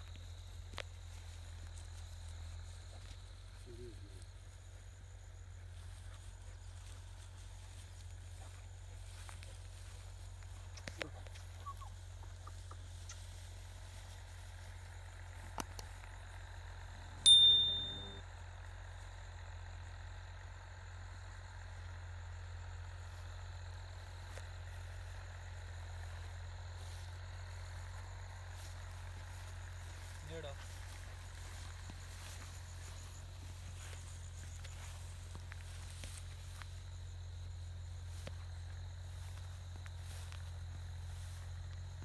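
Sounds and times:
metallic bell ding: 17.2s - 18.2s.

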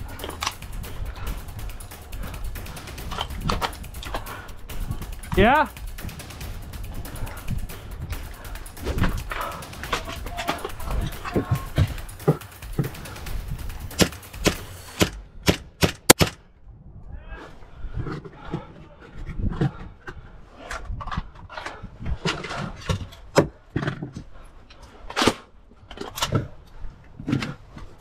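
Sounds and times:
airsoft gun shots: 0.0s - 16.4s.

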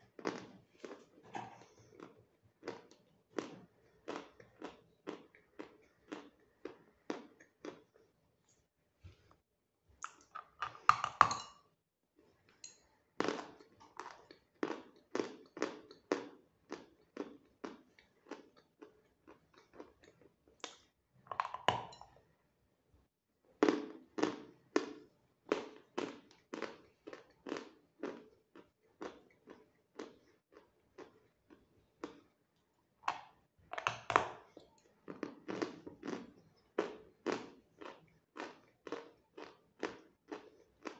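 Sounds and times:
chewing crunches: 0.1s - 8.1s, 13.2s - 20.9s, 23.6s - 32.4s, 33.8s - 40.9s.

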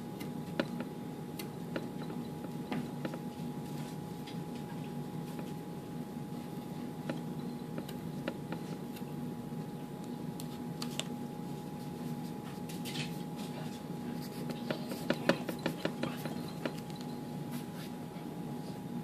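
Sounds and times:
pencil scratching on paper: 14.1s - 16.6s
pencil point tapping: 14.5s - 16.8s.

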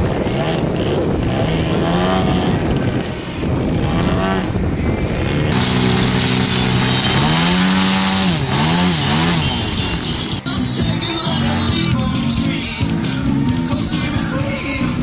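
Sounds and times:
model airplane engine: 0.0s - 10.4s.

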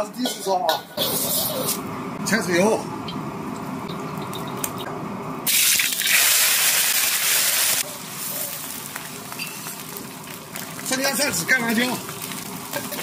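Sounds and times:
fish frying in hot oil: 5.5s - 13.0s.

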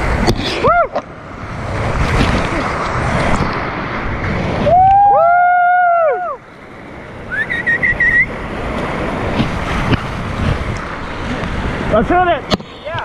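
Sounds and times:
whitewater rapids rushing: 0.0s - 13.0s
short warbling whistle: 7.3s - 8.3s.

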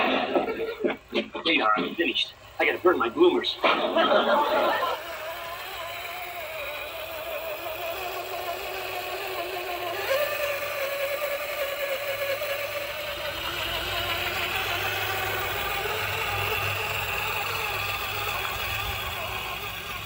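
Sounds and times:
electric motor and gears whining: 0.0s - 20.0s.

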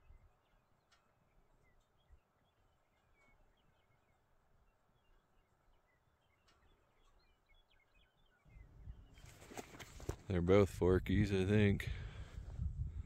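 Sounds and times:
faint small bird chirps: 0.0s - 9.7s.

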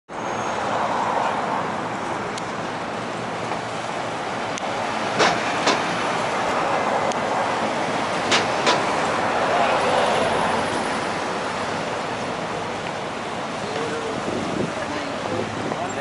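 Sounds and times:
city traffic: 0.1s - 16.0s
sharp knocks: 5.2s - 6.0s, 8.3s - 9.0s.

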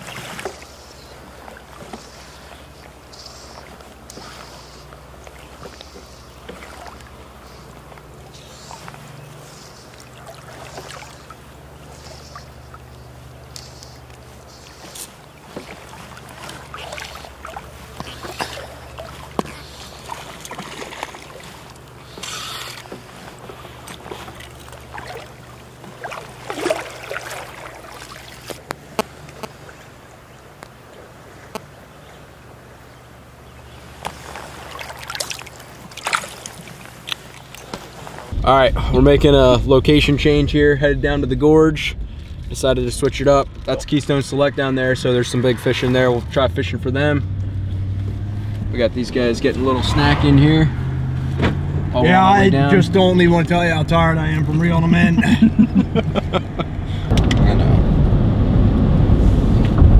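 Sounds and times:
water sloshing and splashing: 0.0s - 57.4s
stream rushing: 14.1s - 32.8s, 33.8s - 59.9s.

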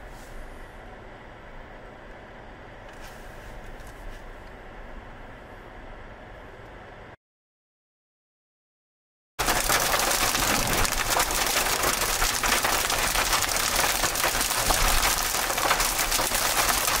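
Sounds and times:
heavy rain on vehicle roof: 9.4s - 17.0s.

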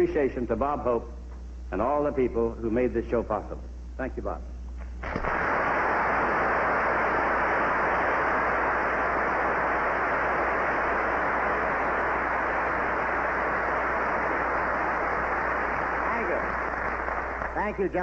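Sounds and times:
large audience applauding: 5.0s - 18.0s.

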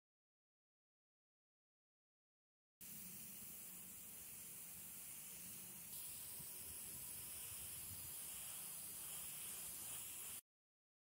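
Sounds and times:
spray paint hissing: 2.8s - 10.5s.

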